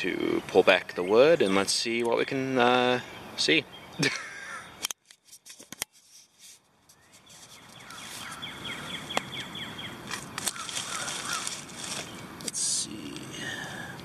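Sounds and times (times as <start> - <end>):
sharp clicks: 4.8 - 5.9
rustling of damp leaf litter: 5.9 - 13.7.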